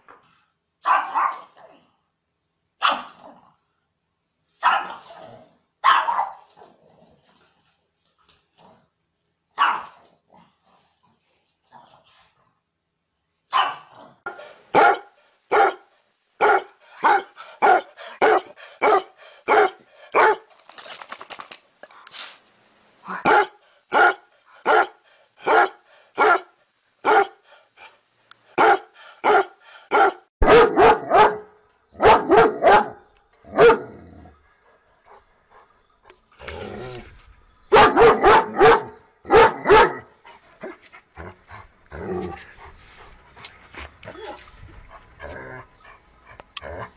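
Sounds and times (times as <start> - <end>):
dogs barking: 0.8 - 1.5, 4.6 - 5.0, 5.8 - 6.5, 9.6 - 10.0, 13.5 - 20.5, 23.2 - 27.4, 28.6 - 34.0, 37.7 - 40.1.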